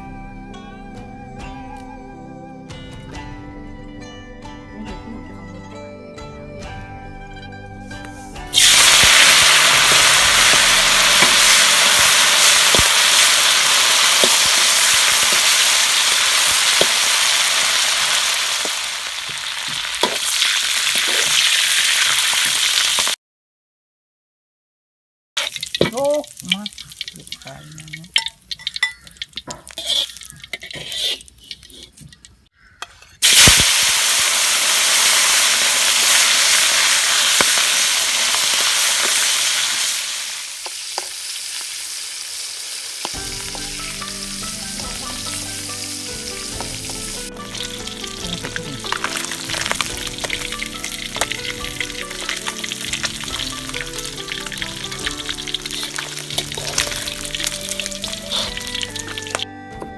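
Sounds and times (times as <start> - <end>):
background music: 0.0 - 18.6, 43.2 - 59.9
fish frying in hot oil: 8.6 - 23.2, 25.4 - 31.9, 33.2 - 59.4.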